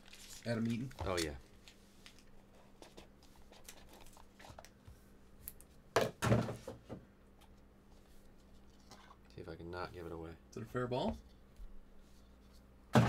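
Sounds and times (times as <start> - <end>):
box thunking on table: 6.0 - 6.8.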